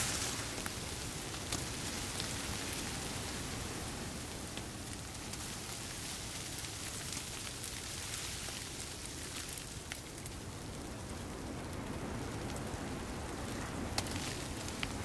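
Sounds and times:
wet snow pattering on canvas: 0.0s - 10.0s, 13.4s - 15.0s.

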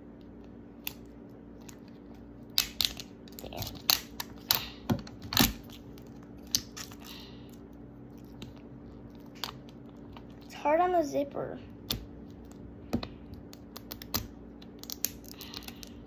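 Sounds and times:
plastic capsule snapping and crackling: 0.8s - 7.1s, 11.8s - 16.0s.

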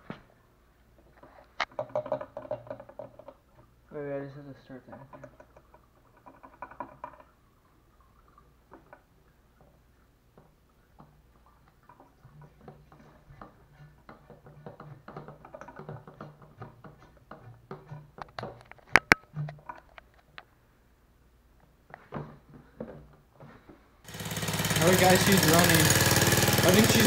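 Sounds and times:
hand siphon pump clicking and creaking: 1.0s - 3.7s, 4.7s - 20.5s, 21.6s - 27.0s
sharp plastic clacks: 17.0s - 20.5s.

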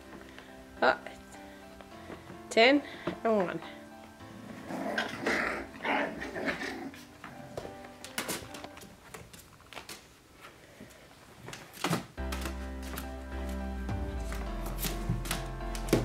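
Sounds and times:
puppies growling and yipping: 4.4s - 7.6s.

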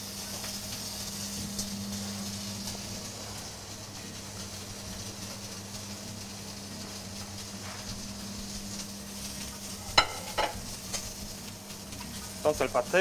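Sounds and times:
meat searing on hot griddle: 0.0s - 13.0s.

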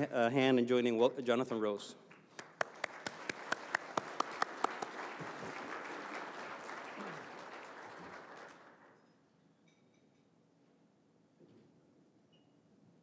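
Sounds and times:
sharp close claps: 2.1s - 8.9s
audience applauding: 2.4s - 9.0s.

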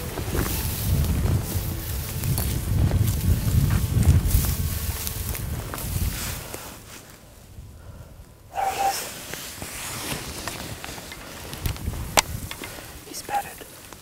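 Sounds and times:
footsteps through dry grass: 0.0s - 14.0s
clothing rustling: 8.6s - 13.0s.

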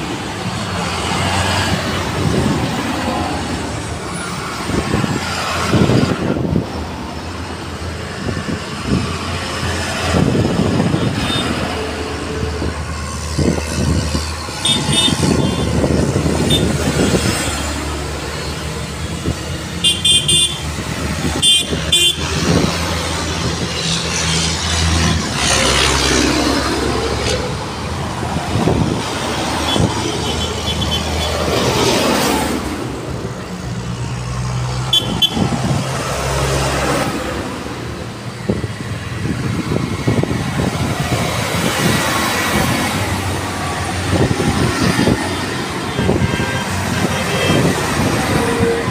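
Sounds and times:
tractor diesel engines passing: 0.0s - 48.9s
horn toots: 19.8s - 20.7s, 21.4s - 22.3s, 34.9s - 35.5s, 45.9s - 48.9s.

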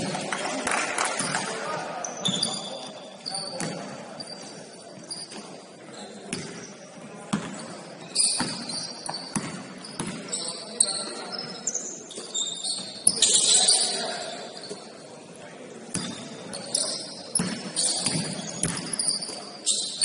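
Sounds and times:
sharp high squeaks: 2.0s - 6.2s, 8.0s - 15.0s, 16.0s - 20.0s.

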